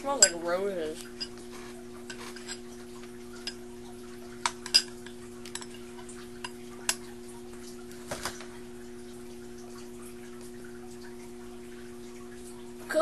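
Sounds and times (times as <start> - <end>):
steady low hum: 0.0 - 13.0
metal spoon clinking on glass: 0.1 - 0.5, 4.6 - 5.8.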